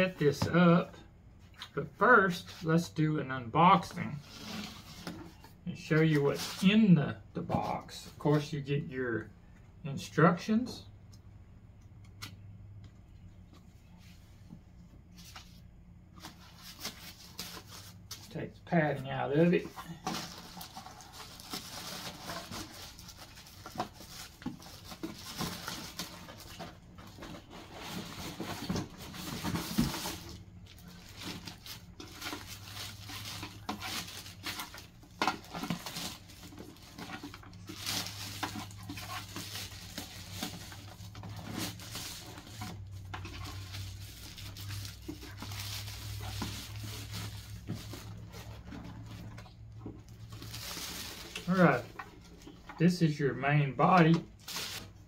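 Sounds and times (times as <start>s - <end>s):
plastic and cardboard rustling: 3.6s - 8.4s, 13.4s - 55.0s.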